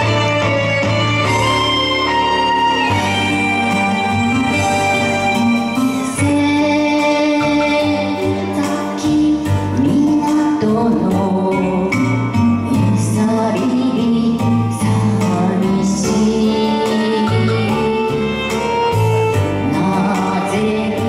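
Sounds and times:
instrumental accompaniment: 0.0s - 21.0s
woman singing into a microphone: 5.7s - 21.0s.

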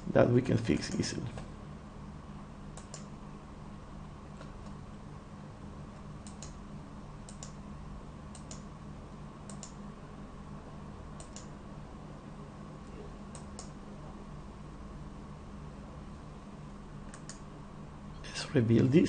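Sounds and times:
faint low hum: 0.0s - 19.0s
computer mouse clicking: 2.7s - 3.1s, 6.2s - 6.6s, 7.2s - 7.6s, 8.3s - 8.7s, 9.5s - 9.8s, 11.2s - 11.5s, 13.3s - 13.8s, 17.1s - 17.4s.

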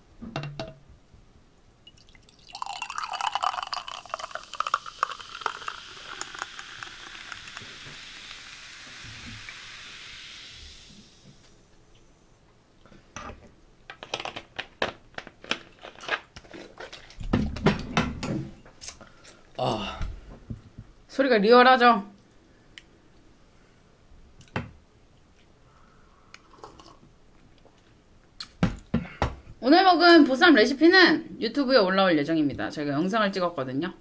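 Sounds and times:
cola fizzing: 1.8s - 11.4s.

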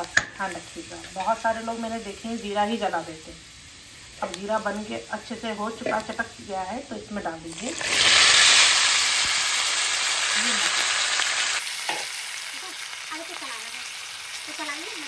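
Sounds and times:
peas sizzling in hot oil: 0.0s - 15.0s.

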